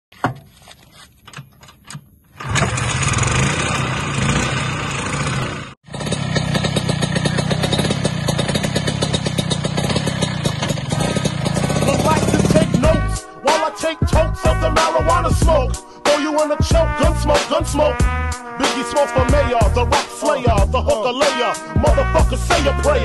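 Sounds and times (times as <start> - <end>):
scooter kick-start knocks: 1.3 - 3.4, 6.1 - 12.4
two-stroke scooter engine running: 2.4 - 13.1.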